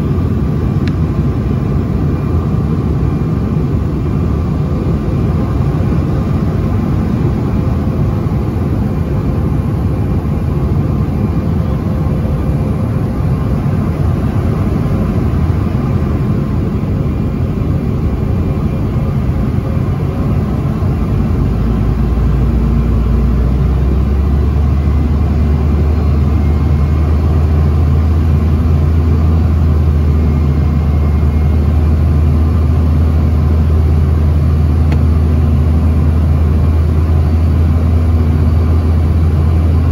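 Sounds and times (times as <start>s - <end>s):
airflow rushing in aircraft cabin: 0.0s - 39.9s
jet engines: 0.0s - 39.9s
low rumble: 12.6s - 30.5s.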